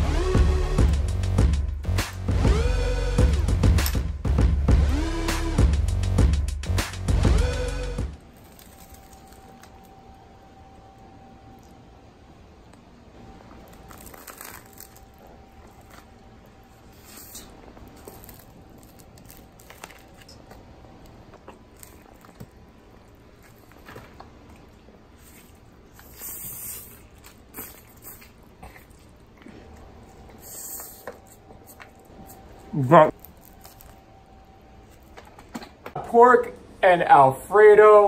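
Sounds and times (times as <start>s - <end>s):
food crunching and rustling: 8.2s - 10.1s, 13.2s - 35.8s.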